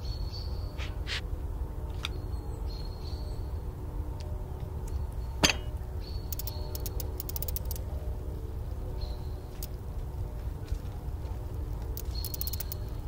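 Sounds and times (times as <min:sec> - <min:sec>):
bicycle freewheel ticking: 0:06.3 - 0:07.8, 0:12.0 - 0:12.9
sharp click: 0:06.3 - 0:07.8, 0:12.0 - 0:12.8.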